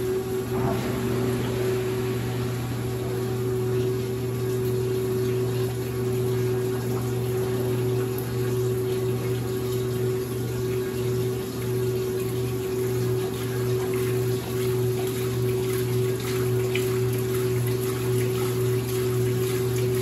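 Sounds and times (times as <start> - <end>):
pump working: 0.0 - 20.0
washing machine motor hum: 0.0 - 20.0
rushing water: 0.2 - 6.1.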